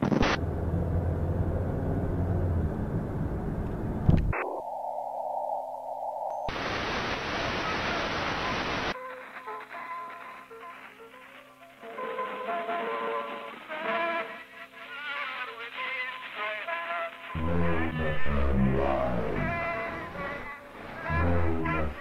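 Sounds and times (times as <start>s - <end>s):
loud white-noise static burst: 0.0s - 0.5s, 6.5s - 9.0s, 17.3s - 22.0s
video tape static hiss: 0.0s - 0.5s, 3.6s - 22.0s
low hum: 0.0s - 7.4s, 17.4s - 22.0s.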